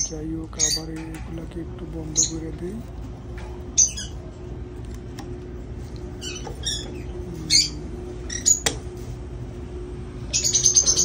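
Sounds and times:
lovebirds squawking: 0.0s - 1.2s, 1.9s - 2.7s, 3.6s - 4.4s, 6.1s - 8.9s, 10.2s - 11.0s
steady low hum: 0.0s - 11.0s.

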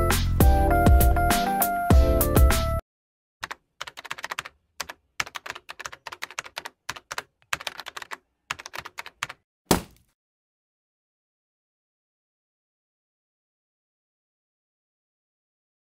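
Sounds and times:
computer keyboard typing: 3.4s - 9.4s.

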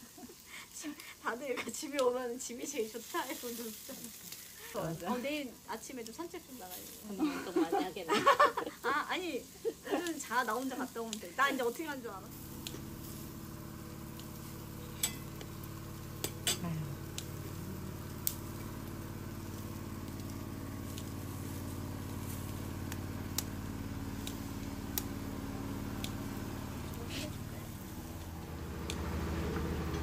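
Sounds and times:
meat sizzling on grill: 0.0s - 30.0s
low hum: 12.2s - 30.0s.

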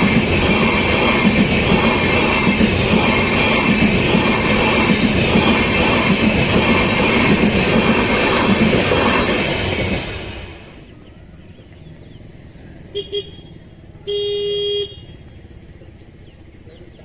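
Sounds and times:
wheels clattering over rail joints: 0.0s - 10.7s
train coaches rumbling past: 0.0s - 14.2s.

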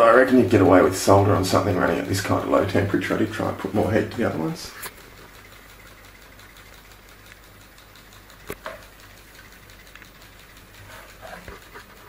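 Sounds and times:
sharp clicks: 4.8s - 12.0s.

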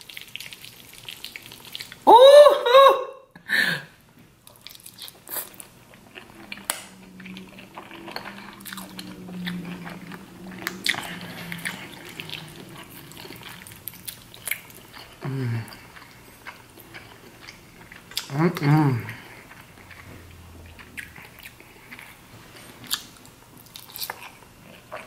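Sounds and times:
wet chewing: 0.0s - 2.0s, 4.4s - 25.0s
low closed-mouth hum: 0.0s - 25.0s.

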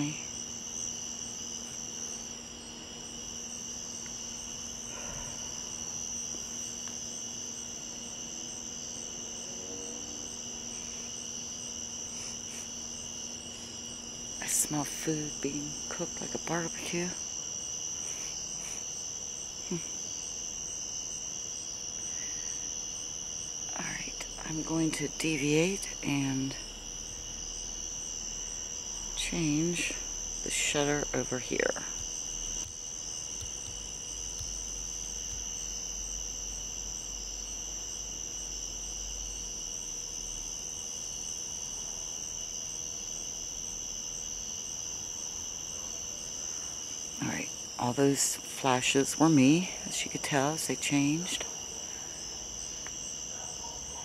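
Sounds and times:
night insects trilling: 0.0s - 54.0s.

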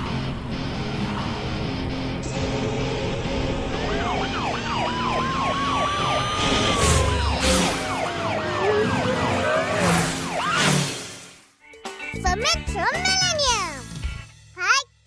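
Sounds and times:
background music: 0.0s - 10.8s, 11.6s - 15.0s
cartoon police siren wailing: 3.7s - 10.8s.

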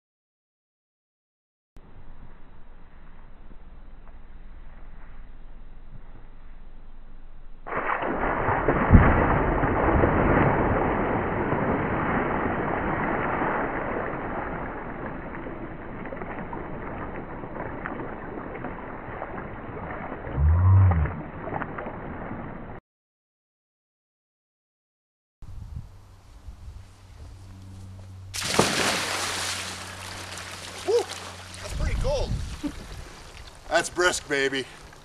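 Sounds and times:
big splash into pool: 7.7s - 22.6s, 28.3s - 31.6s
man's low vocal sound: 20.4s - 21.2s
water and ice sloshing: 28.4s - 33.7s.

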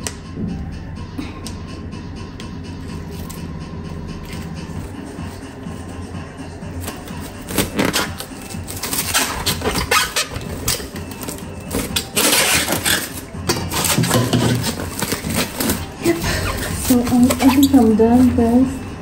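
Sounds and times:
cling film crinkling: 6.8s - 18.6s.

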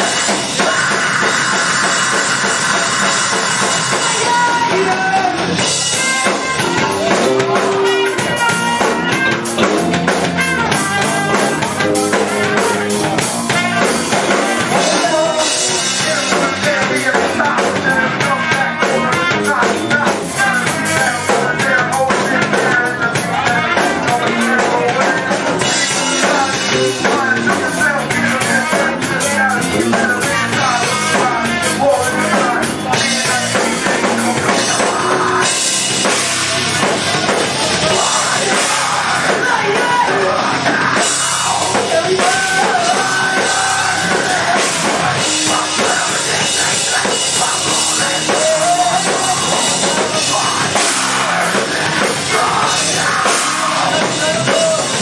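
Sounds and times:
vocals into microphones: 0.0s - 9.7s, 10.4s - 55.0s
trumpet: 0.0s - 16.6s
live heavy rock band: 0.0s - 55.0s
pounding drum kit: 0.0s - 55.0s.

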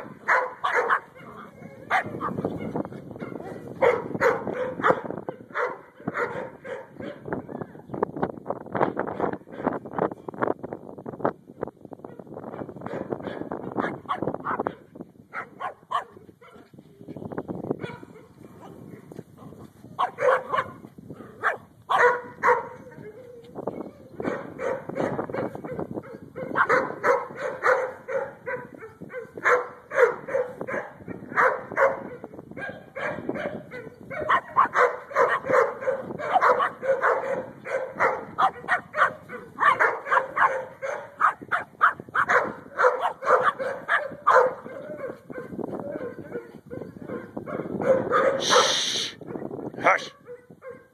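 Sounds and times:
small dog yapping: 47.9s - 49.1s.

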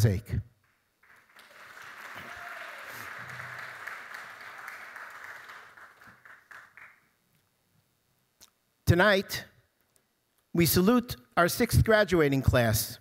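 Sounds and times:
audience applauding: 0.6s - 7.2s.

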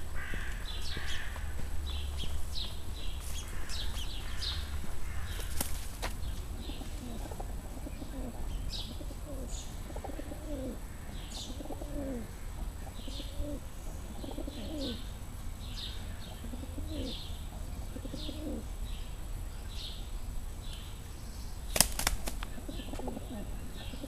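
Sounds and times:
pigeon cooing: 2.2s - 15.2s, 15.9s - 18.8s, 22.1s - 24.0s.

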